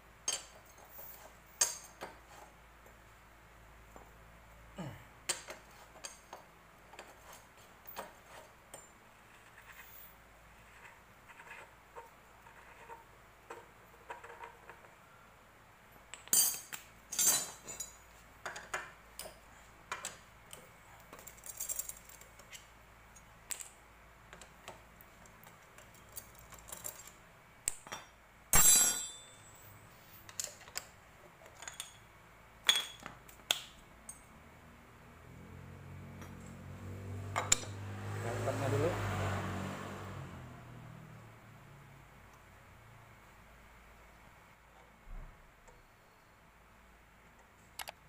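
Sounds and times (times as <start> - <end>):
metal tools clinking: 16.1 - 19.4, 27.8 - 30.8, 31.6 - 32.1.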